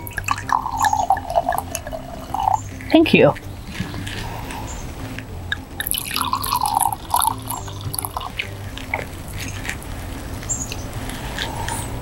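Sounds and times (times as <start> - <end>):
wine gurgling into a glass: 0.0 - 2.9, 5.6 - 9.4.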